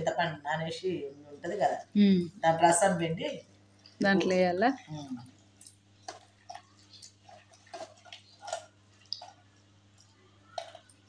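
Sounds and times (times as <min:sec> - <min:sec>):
hand squelching wet mixture: 0:03.6 - 0:11.0.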